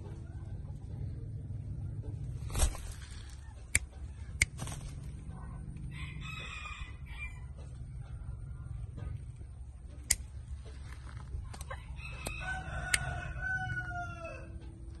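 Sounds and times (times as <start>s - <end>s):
steady low rumble: 0.0s - 15.0s
sharp clicks: 3.7s - 5.0s
rooster crowing: 5.9s - 7.5s, 11.9s - 14.6s.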